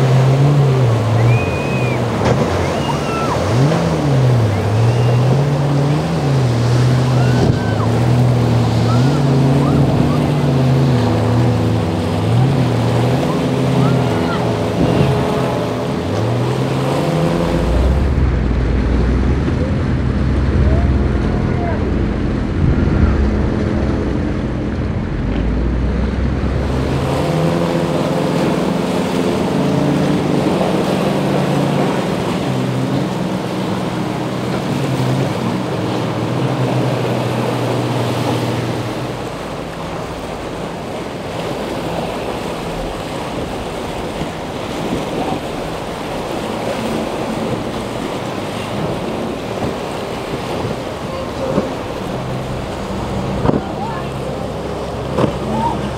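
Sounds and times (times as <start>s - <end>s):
motorboat engines droning: 0.0s - 55.9s
surf rushing: 0.0s - 55.9s.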